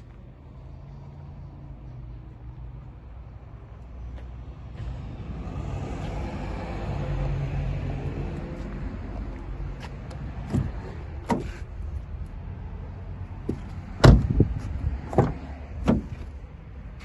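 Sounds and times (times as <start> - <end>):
car door latch clicks and thumps: 10.1 - 11.7, 13.5 - 16.3.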